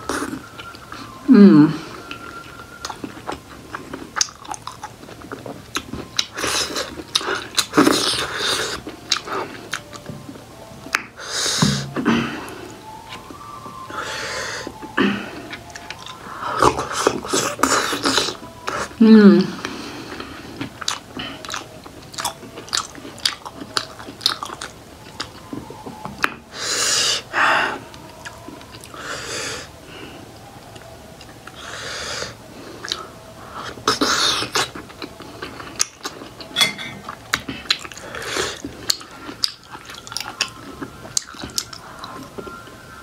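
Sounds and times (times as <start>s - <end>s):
close-miked chewing: 1.9s - 43.0s
breathy sounds: 11.2s - 13.0s.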